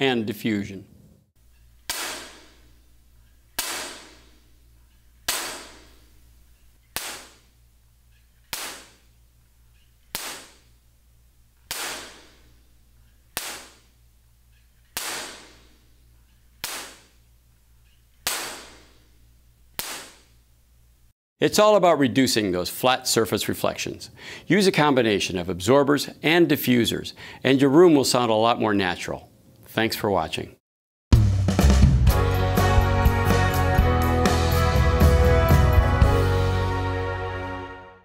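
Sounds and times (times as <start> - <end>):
clapper sticks cracking: 1.5 - 6.1, 6.8 - 9.1, 9.7 - 10.7, 11.6 - 15.7, 16.3 - 17.2, 19.8 - 20.4
room echo: 1.9 - 2.8, 3.6 - 4.5.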